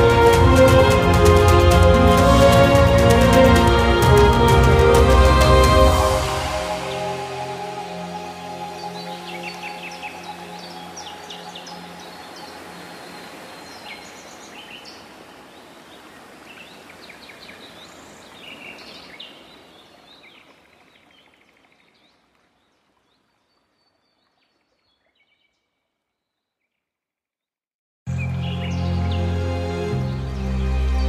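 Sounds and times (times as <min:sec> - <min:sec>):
birds chirping and trilling: 0:06.2 - 0:22.2, 0:28.1 - 0:31.0.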